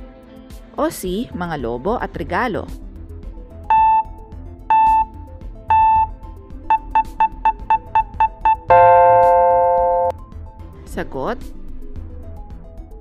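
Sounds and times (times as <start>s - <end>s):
soft background music: 0.0s - 13.0s
countdown timer beeps: 3.7s - 4.1s, 4.7s - 10.1s
chord tone: 5.7s - 6.1s, 6.7s - 10.1s.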